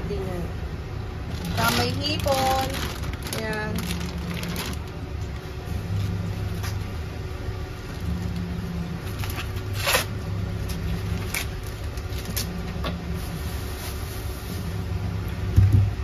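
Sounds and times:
steady low hum: 0:00.0 - 0:16.0
corn husks tearing: 0:01.3 - 0:05.0, 0:09.1 - 0:12.6.

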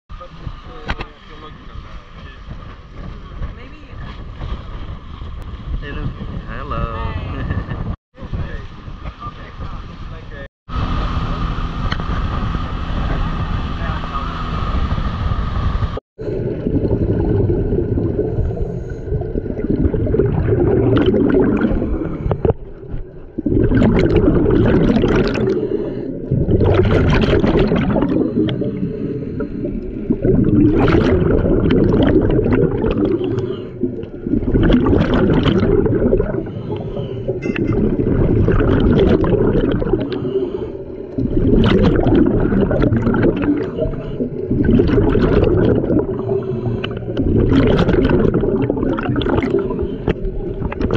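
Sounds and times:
low underwater rumble: 0:00.1 - 0:50.9
regulator bubbles burbling: 0:16.2 - 0:50.9.

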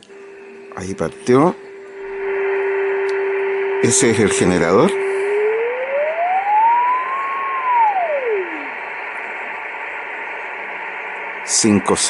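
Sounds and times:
receiver hiss: 0:00.0 - 0:12.0
radio beat note whistle: 0:02.0 - 0:10.6.

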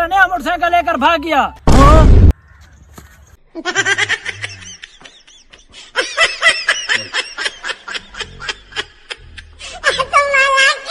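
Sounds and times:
rapid high-pitched laughter: 0:03.5 - 0:10.9.

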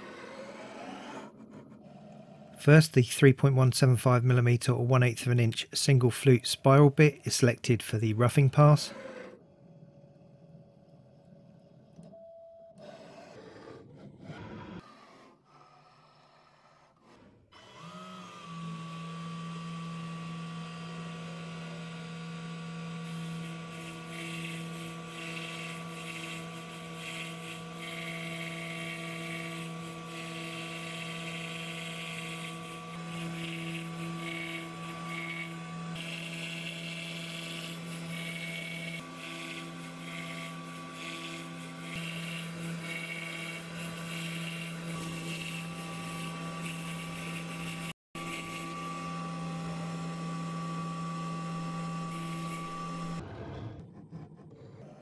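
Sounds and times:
mill bit cutting board: 0:06.2 - 0:09.4, 0:12.8 - 0:55.0.

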